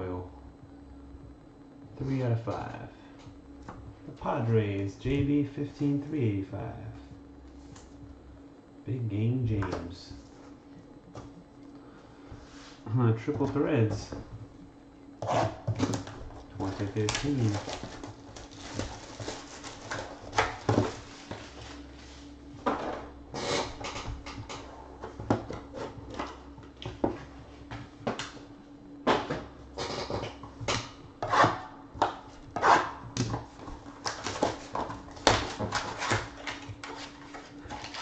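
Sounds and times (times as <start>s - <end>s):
wrapper crinkling and tearing: 16.7s - 21.1s.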